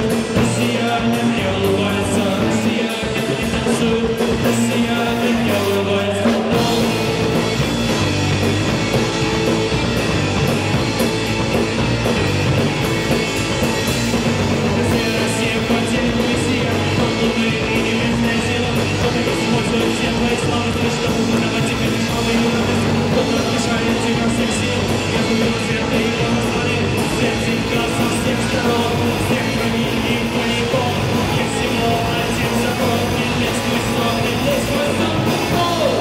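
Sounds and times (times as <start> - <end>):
live rock band playing: 0.0 - 36.0.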